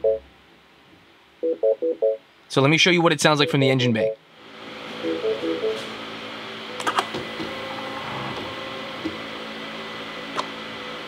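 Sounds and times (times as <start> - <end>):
fuel pump whirring hum: 4.2 - 11.0.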